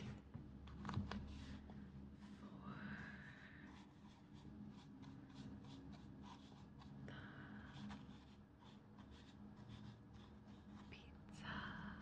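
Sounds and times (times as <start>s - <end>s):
low background hum: 0.0s - 12.0s
pen scratching on paper: 3.7s - 7.0s, 7.7s - 10.9s.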